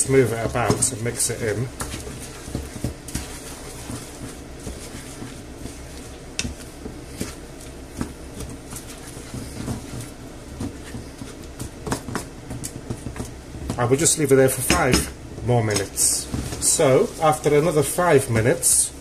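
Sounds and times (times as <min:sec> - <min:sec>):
spatula scraping frying pan: 0:00.1 - 0:11.6.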